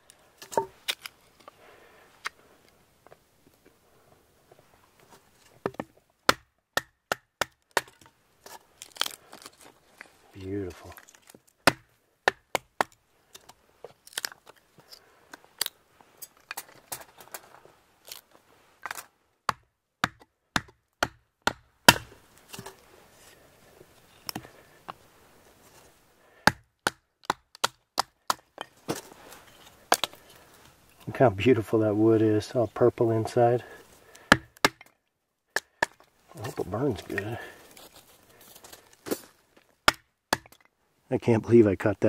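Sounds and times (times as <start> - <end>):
wood splitting cracks: 0.4 - 1.2, 5.6 - 10.1, 10.8 - 14.6, 18.8 - 22.8, 26.4 - 29.1, 29.7 - 30.4, 34.0 - 37.3.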